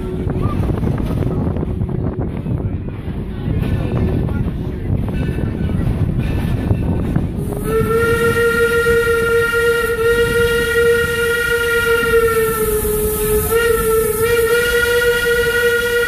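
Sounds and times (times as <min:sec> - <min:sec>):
train rumbling: 0:00.0 - 0:16.0
steam locomotive whistle: 0:07.4 - 0:16.0.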